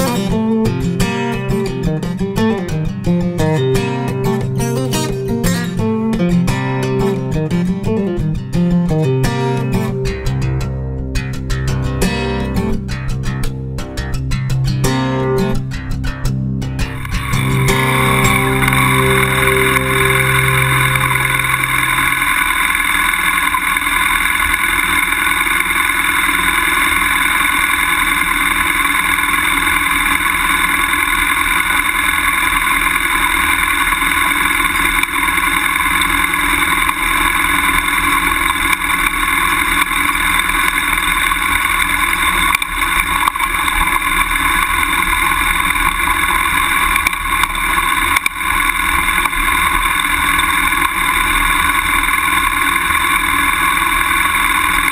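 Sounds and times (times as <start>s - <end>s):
motorcycle engine running: 16.8s - 54.9s.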